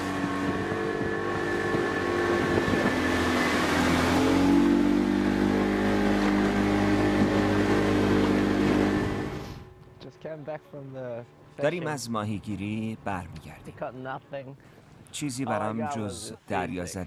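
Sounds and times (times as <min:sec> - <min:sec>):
wind and water rushing over hull: 0:00.0 - 0:09.7
boat engine running: 0:00.0 - 0:10.3.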